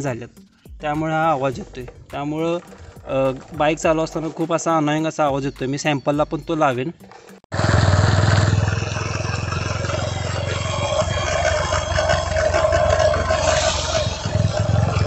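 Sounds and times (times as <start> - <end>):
motorcycle engine running: 7.1 - 15.0
chain drive whine: 7.6 - 15.0.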